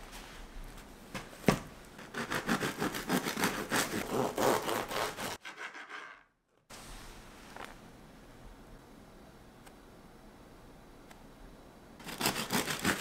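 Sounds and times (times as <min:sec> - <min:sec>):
bread knife sawing through loaf: 0:02.0 - 0:06.0, 0:12.0 - 0:13.0.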